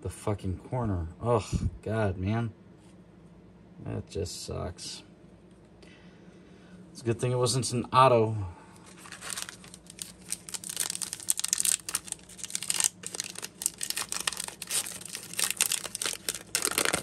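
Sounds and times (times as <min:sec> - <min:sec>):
foil wrapper crinkling and tearing: 0:08.8 - 0:17.0.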